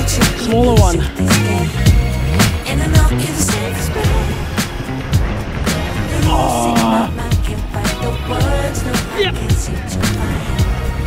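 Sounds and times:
funk song with bass line: 0:00.0 - 0:11.0.

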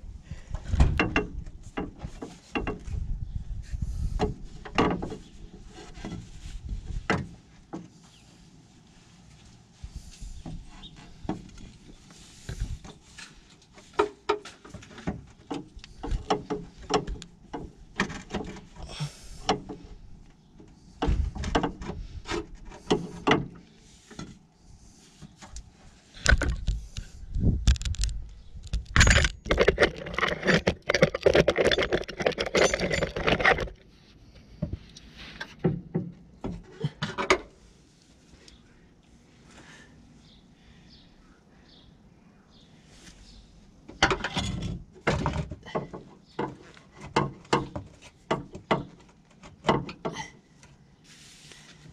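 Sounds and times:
metal parts clanking and scraping: 0:28.7 - 0:34.0, 0:44.0 - 0:47.8
loud rattling clatter: 0:28.9 - 0:33.8.

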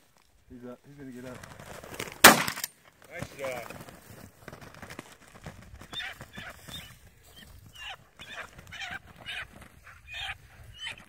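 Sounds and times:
pheasant distress calls: 0:05.8 - 0:11.0.

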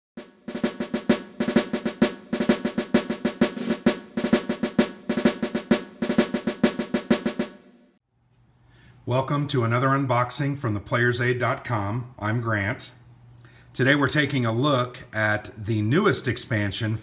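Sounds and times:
fast rhythmic snare drumming: 0:00.2 - 0:07.8.

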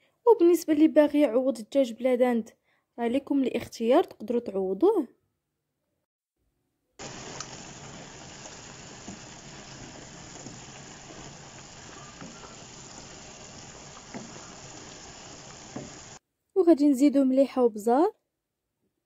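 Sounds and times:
chicken and mushrooms sizzling: 0:07.0 - 0:16.2
wooden spatula tapping pan: 0:08.9 - 0:16.2.

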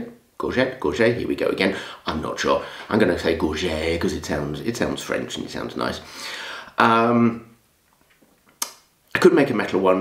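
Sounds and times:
man exhaling: 0:06.1 - 0:06.8.

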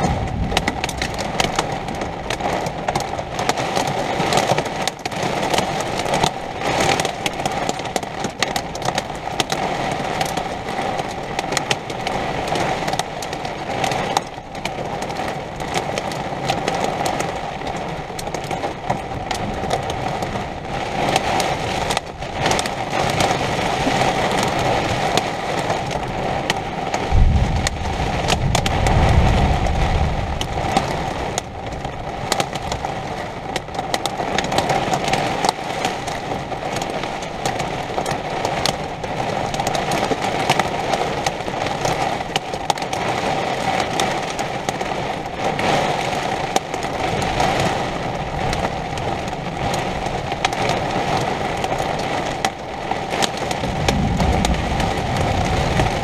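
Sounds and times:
low rumble of thunder: 0:00.0 - 0:04.2, 0:27.0 - 0:34.2, 0:53.4 - 0:56.0
steady rain with sharp ticks: 0:00.0 - 0:56.0.

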